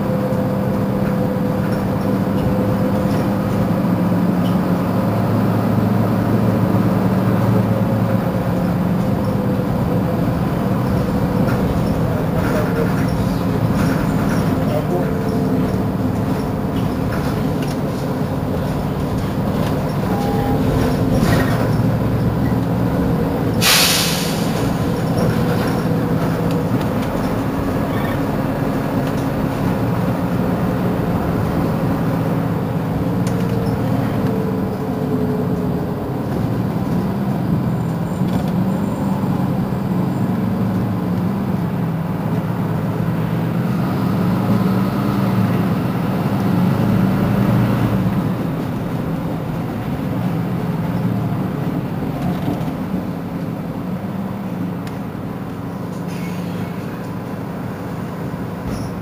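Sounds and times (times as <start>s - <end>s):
bus engine running: 0.0s - 59.0s
road noise: 0.0s - 59.0s
air release hiss: 23.6s - 25.2s.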